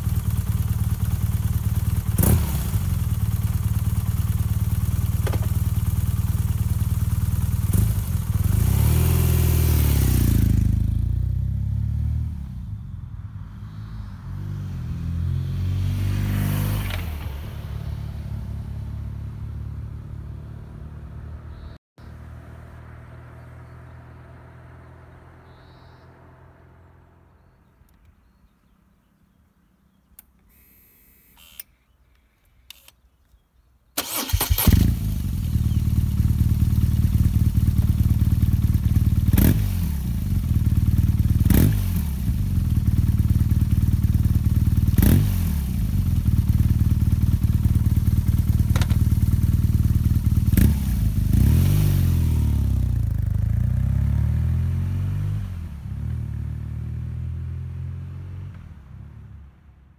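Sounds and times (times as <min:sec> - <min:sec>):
motorcycle engine idling and revving: 0:00.0 - 0:30.7, 0:34.0 - 0:59.9
starter clicks and buzz: 0:01.5 - 0:06.0, 0:30.1 - 0:33.4, 0:34.0 - 0:36.4, 0:48.0 - 0:49.5.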